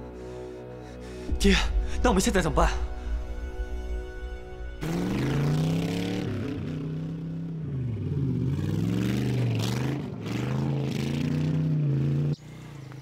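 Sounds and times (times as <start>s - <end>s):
motorcycle engine revving: 4.6s - 13.0s.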